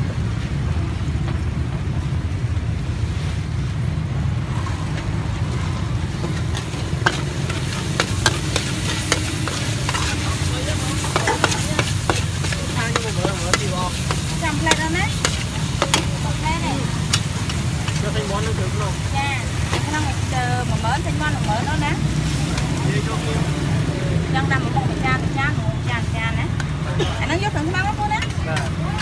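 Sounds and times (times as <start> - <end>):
steady low rumble: 0.0 - 26.7
food sizzling: 0.0 - 29.0
metal spatula scraping a wok: 5.6 - 20.8.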